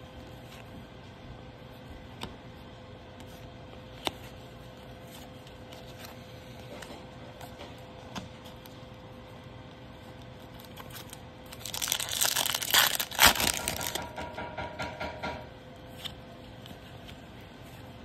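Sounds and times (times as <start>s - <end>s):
foil wrapper tearing and crinkling: 10.3s - 14.1s.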